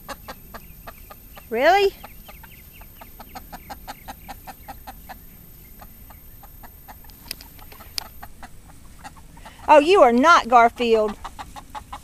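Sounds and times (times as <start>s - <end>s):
hens clucking: 0.0s - 12.0s
sharp clicks: 2.4s - 8.3s.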